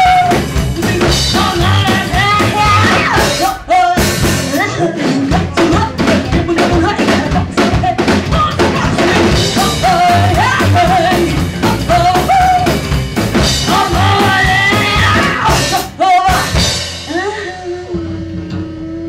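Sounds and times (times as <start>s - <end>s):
woman singing into a microphone: 0.0s - 12.8s, 13.4s - 19.0s
drum kit: 0.0s - 19.0s
upright double bass: 0.0s - 19.0s.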